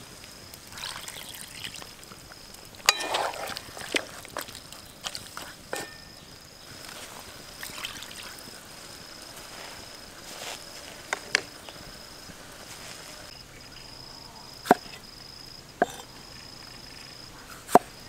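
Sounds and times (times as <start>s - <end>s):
insects chirring: 0.0s - 18.0s
knife chopping on wooden board: 15.8s - 16.0s.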